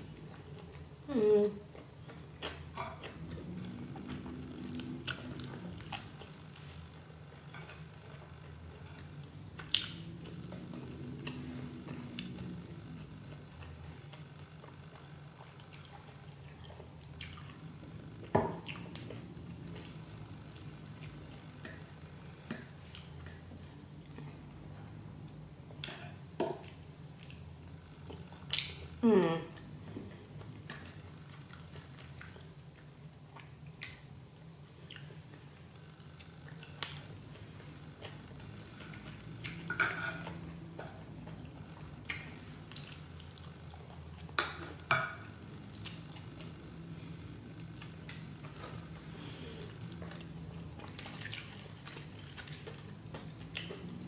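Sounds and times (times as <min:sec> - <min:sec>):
low hum: 0:00.0 - 0:25.8
soft chewing: 0:00.0 - 0:54.0
steady low hum: 0:00.0 - 0:54.0.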